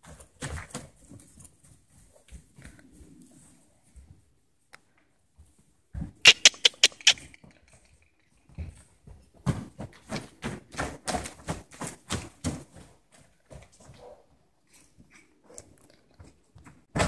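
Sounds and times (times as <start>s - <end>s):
horse hoofbeats on dirt: 0.0s - 3.2s, 5.4s - 17.0s.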